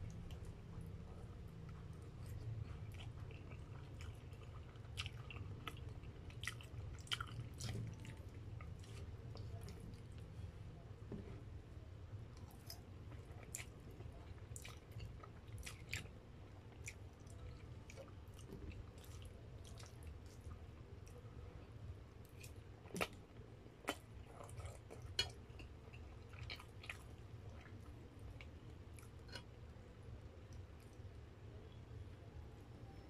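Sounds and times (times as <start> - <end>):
faint low hum: 0.0 - 33.0
person chewing: 1.6 - 10.2, 12.4 - 21.2, 22.2 - 23.2, 23.8 - 29.6.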